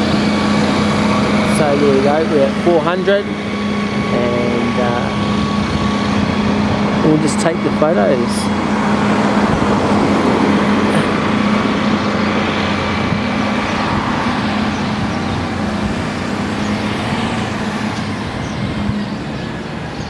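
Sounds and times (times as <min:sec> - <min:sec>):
road noise: 0:00.0 - 0:20.0
vehicle engine running: 0:00.0 - 0:20.0.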